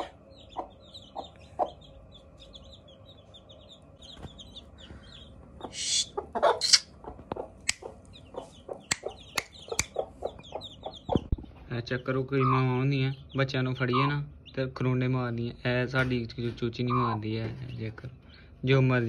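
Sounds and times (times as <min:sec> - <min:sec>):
hen clucking: 0:00.0 - 0:11.4
chicks peeping: 0:00.0 - 0:18.3
sharp clicks: 0:06.6 - 0:06.8.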